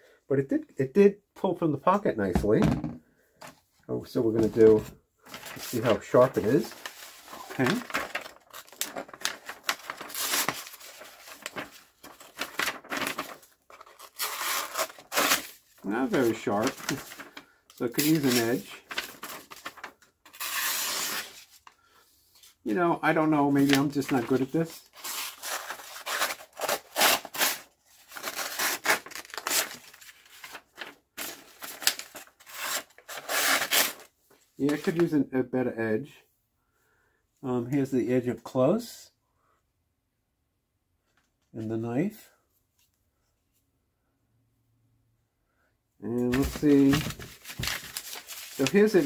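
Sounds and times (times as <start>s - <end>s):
paper crinkling: 4.4s - 21.8s, 22.4s - 34.1s, 46.2s - 49.0s
knife blade tearing paper: 13.8s - 15.6s, 20.3s - 21.4s, 25.0s - 29.8s, 31.7s - 34.1s.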